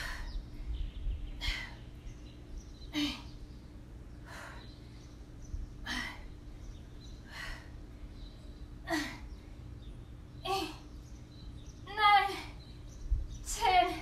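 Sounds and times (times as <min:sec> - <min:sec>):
woman breathing hard: 0:00.0 - 0:00.7, 0:04.1 - 0:09.5
faint steady hum: 0:00.0 - 0:14.0.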